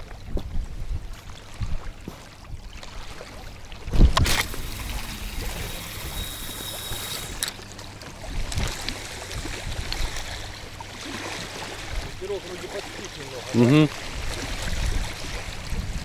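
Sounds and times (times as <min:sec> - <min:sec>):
small waves lapping: 0:00.0 - 0:16.0
fishing line hissing off reel: 0:04.3 - 0:07.6.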